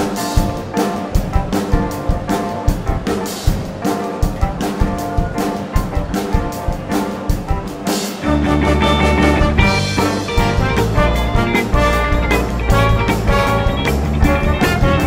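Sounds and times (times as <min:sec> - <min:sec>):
drum strokes: 0:00.0 - 0:15.0
live rock band playing: 0:00.0 - 0:15.0
sustained low bass: 0:08.3 - 0:15.0.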